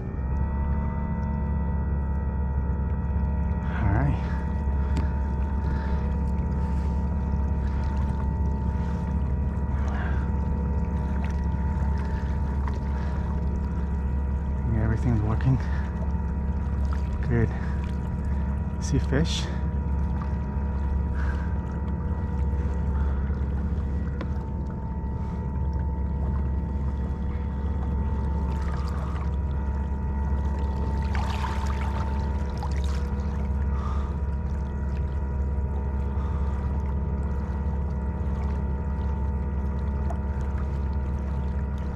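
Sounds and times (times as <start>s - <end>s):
water hissing along hull: 3.6s - 41.9s.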